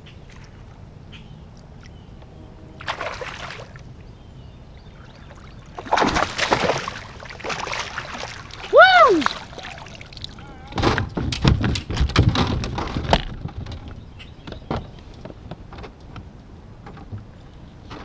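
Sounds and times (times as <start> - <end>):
dripping water: 4.9 - 10.4
fish thrashing in net: 5.8 - 10.3.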